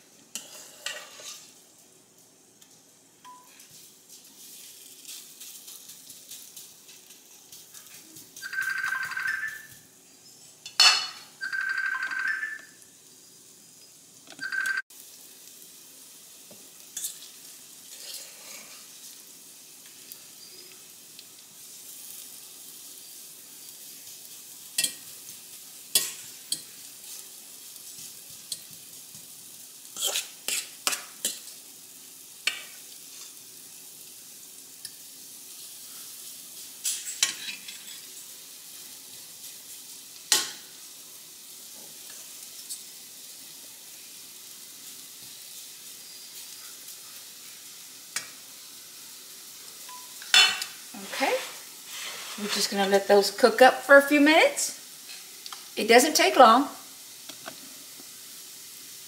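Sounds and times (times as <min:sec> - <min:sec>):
patties sizzling in skillet: 0:00.0 - 0:59.0
fork scraping metal bowl: 0:00.4 - 0:01.5, 0:30.0 - 0:31.0.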